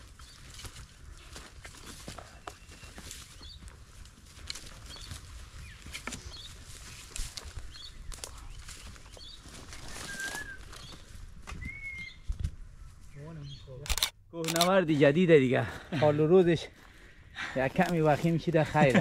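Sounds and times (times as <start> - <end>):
footsteps crunching dry grass: 0.0 - 13.6, 14.5 - 19.0
bird chirping: 4.8 - 6.6, 7.7 - 14.7
bird whistled notes: 9.8 - 12.3.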